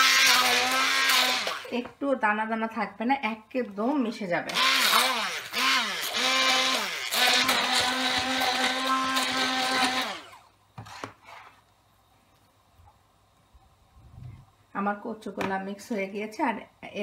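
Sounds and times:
stick blender running: 0.0 - 1.7, 4.5 - 11.1.

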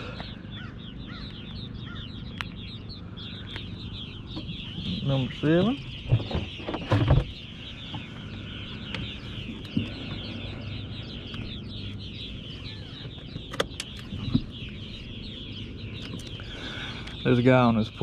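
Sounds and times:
high-pitched chirps chorus: 0.0 - 18.0
sharp clicks: 2.3 - 2.7.

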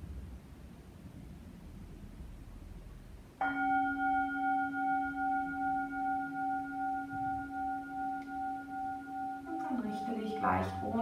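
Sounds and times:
metal singing bowl ringing: 3.4 - 11.0.

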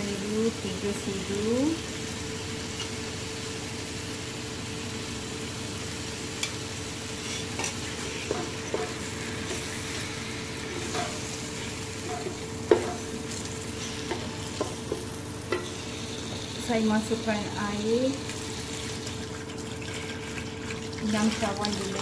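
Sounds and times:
food sizzling in a pot: 0.0 - 22.0
spatula knocking and scraping pot: 7.2 - 9.7, 10.6 - 11.3, 12.0 - 13.2.

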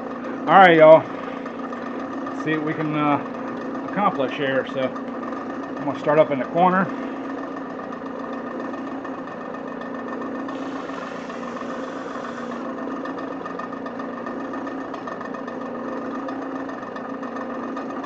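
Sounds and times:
drill press motor humming: 0.0 - 18.0
abrasive pad scrubbing metal: 10.5 - 12.7.

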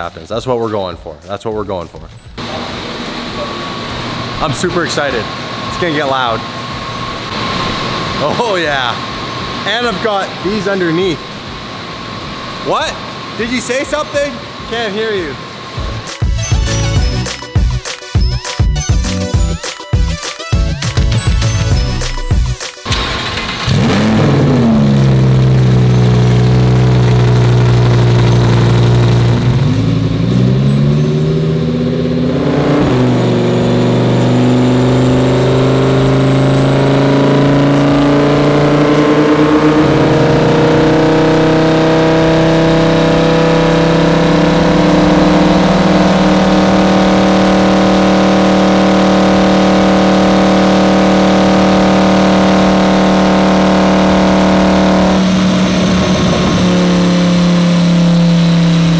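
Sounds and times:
sports car engine revving: 22.9 - 58.9.

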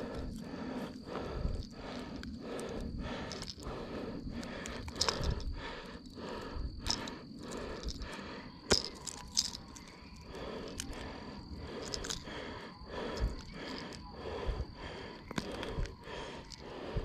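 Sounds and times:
lure rustling and scraping: 0.1 - 5.6, 6.6 - 12.3.

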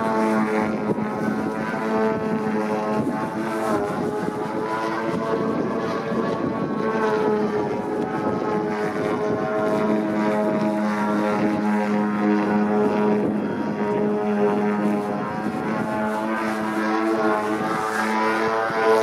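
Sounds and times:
model plane engine and propeller: 0.0 - 19.0.

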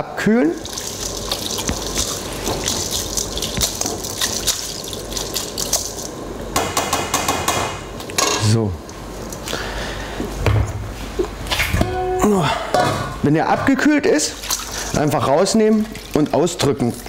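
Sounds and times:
water sloshing in metal bowl: 0.6 - 6.1, 13.6 - 17.0.

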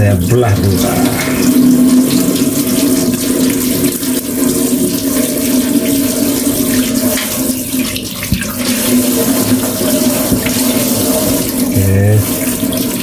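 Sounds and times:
tap water running into sink: 0.0 - 13.0.

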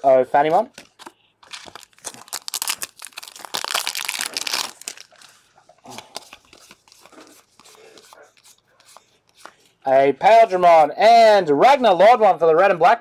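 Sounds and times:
cards clicking and rustling: 0.7 - 9.6
wrapper crinkling and tearing: 1.0 - 7.3.

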